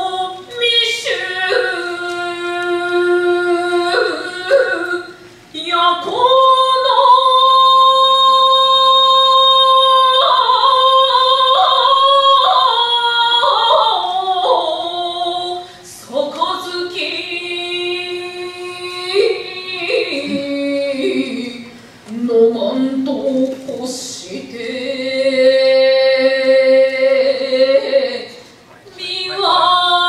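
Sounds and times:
woman chanting verse: 9.7s - 30.0s.

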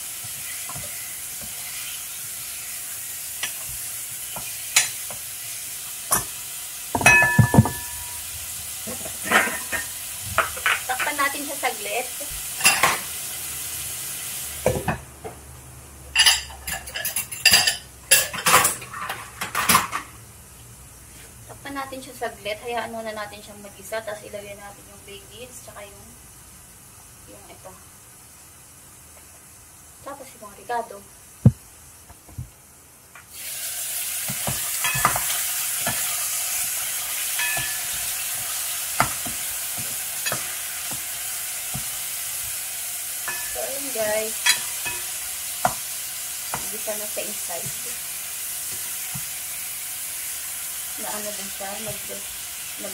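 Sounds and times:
chicken sizzling in frying pan: 0.0s - 32.0s, 33.1s - 52.9s
glass lid knocking on pan: 7.0s - 8.2s.

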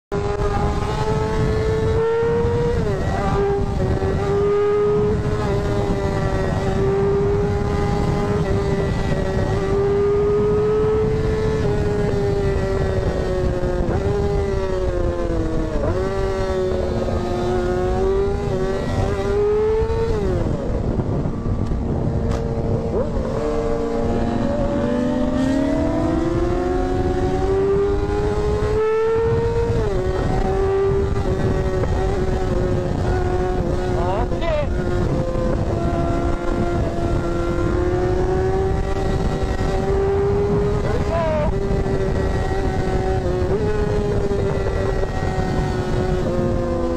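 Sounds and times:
racing engine at high revs: 0.1s - 46.9s.

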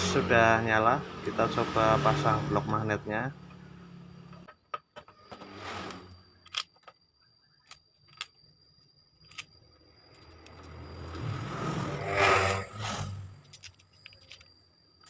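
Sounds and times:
passing vehicle engine: 0.0s - 4.4s, 10.4s - 13.4s
metal clicks and taps: 7.6s - 8.4s, 9.2s - 10.7s, 13.4s - 14.6s.

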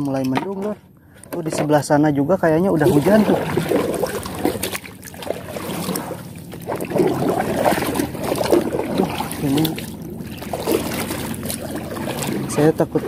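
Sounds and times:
water sloshing against hull: 0.4s - 13.0s
paddle pulling through water: 2.6s - 13.0s.

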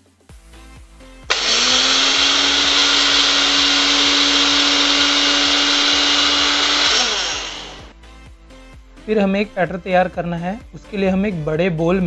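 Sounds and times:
electric mixer grinder running: 1.3s - 7.9s.

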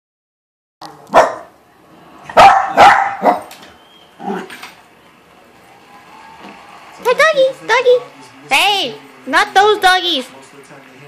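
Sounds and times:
dog barking sharply: 1.1s - 1.5s, 2.3s - 3.5s.

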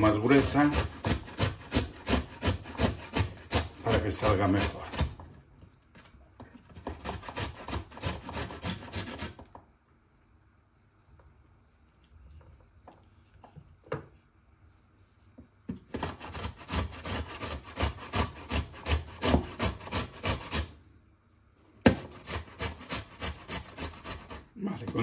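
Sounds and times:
tomato rasping on grater: 0.0s - 5.2s, 6.8s - 9.4s, 15.9s - 20.8s, 21.9s - 25.0s.

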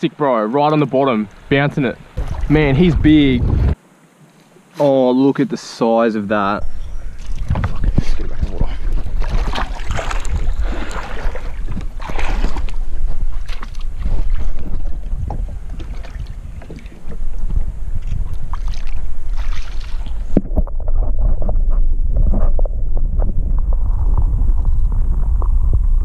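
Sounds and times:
water sloshing and splashing: 0.6s - 2.8s, 7.1s - 25.6s
wind buffeting microphone: 1.3s - 3.8s, 6.6s - 26.0s.

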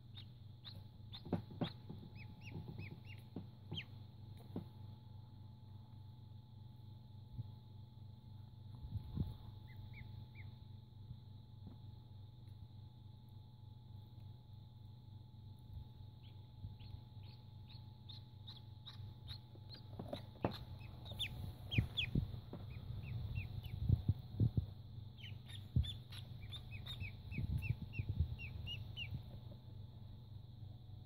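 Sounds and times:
ducklings peeping: 0.0s - 4.6s, 9.2s - 10.6s, 16.2s - 29.6s.

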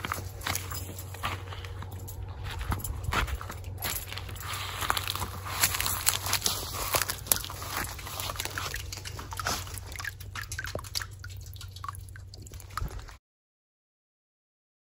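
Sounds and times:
grass and brush rustling underfoot: 0.0s - 10.2s.

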